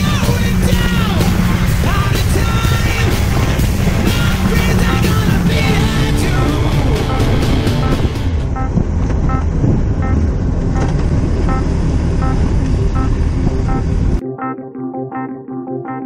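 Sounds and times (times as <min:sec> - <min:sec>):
piano music: 0:00.0 - 0:10.2, 0:12.2 - 0:16.0
motorcycle engine: 0:00.0 - 0:14.2
wind rush: 0:00.0 - 0:14.2.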